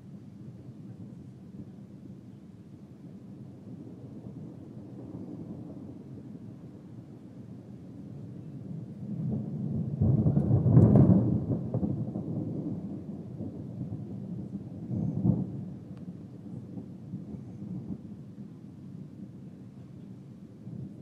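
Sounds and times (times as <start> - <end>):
thunder rumbling: 3.5 - 19.4, 20.4 - 21.0.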